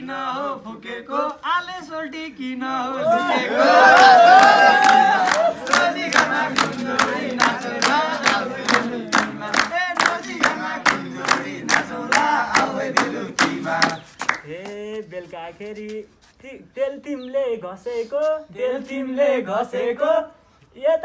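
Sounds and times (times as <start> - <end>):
crowd voices calling: 3.0 - 9.5
men clapping hands in rhythm: 3.6 - 14.8.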